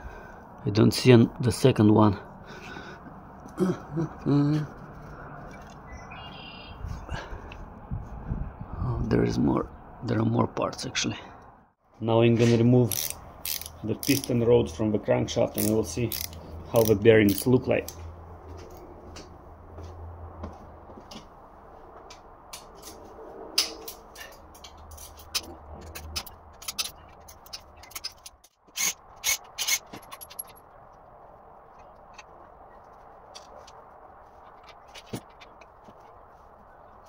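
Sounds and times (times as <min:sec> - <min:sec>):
ratchet wrench clicking: 0:12.9 - 0:14.3, 0:15.6 - 0:17.6, 0:24.6 - 0:30.5.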